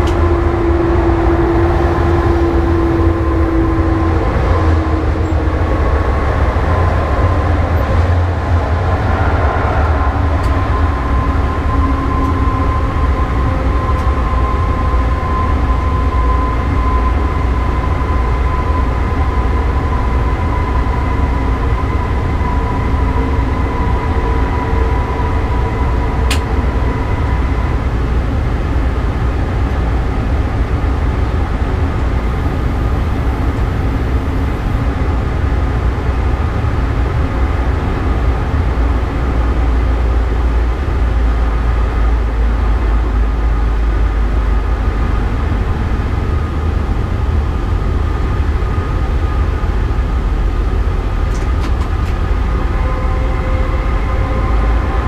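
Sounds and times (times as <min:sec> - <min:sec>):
electric traction drive whine: 0:00.0 - 0:55.0
wheels rumbling on track: 0:00.0 - 0:55.0.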